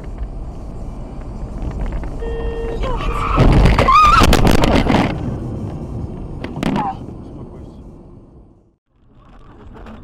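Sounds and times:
car road and engine noise: 0:00.0 - 0:10.0
car horn: 0:02.2 - 0:03.3.

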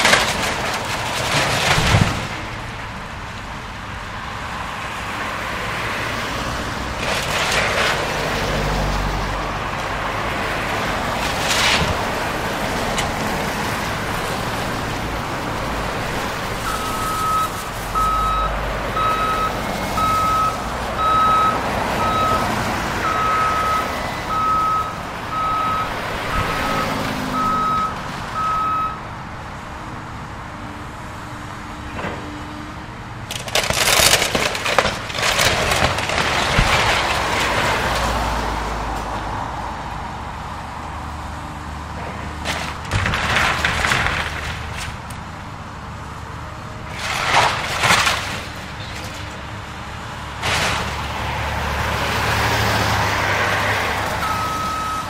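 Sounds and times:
wood crashing and cracking: 0:00.0 - 0:02.9, 0:06.2 - 0:18.3, 0:33.3 - 0:39.0, 0:42.3 - 0:45.4, 0:46.9 - 0:49.4, 0:50.3 - 0:54.5
excavator engine running: 0:06.8 - 0:29.0
backup alarm beeping: 0:23.0 - 0:29.0, 0:54.2 - 0:55.0.

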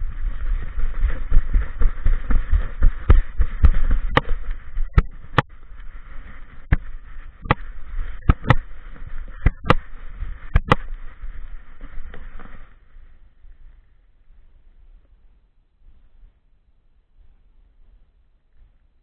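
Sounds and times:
low thuds: 0:00.0 - 0:12.7.

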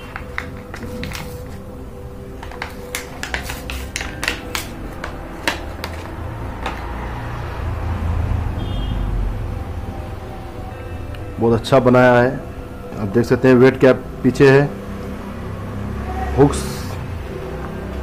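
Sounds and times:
packaging crackling and rustling: 0:00.0 - 0:01.6, 0:02.4 - 0:06.9.

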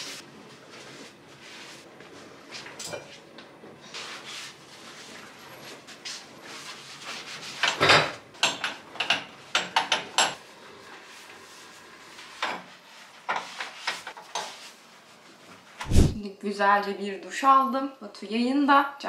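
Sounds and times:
cloth wiping glass: 0:15.9 - 0:16.2.

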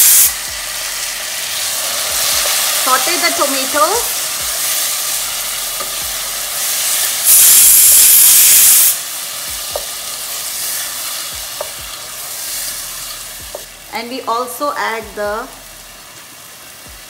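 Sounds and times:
vegetables sizzling in hot oil: 0:00.0 - 0:17.0
wooden spatula knocking on pan: 0:09.7 - 0:09.9.

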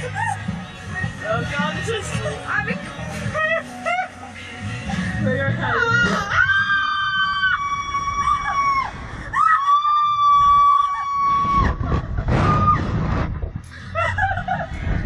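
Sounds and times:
woman screaming: 0:05.6 - 0:11.8
rushing noise: 0:07.3 - 0:15.0.

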